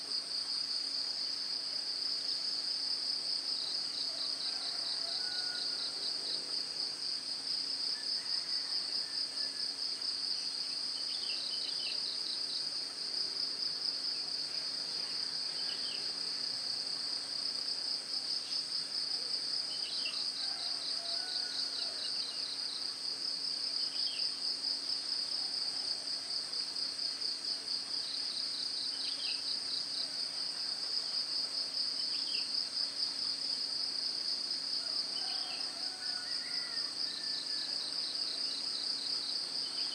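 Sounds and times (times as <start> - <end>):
insects trilling: 34.8 - 39.9.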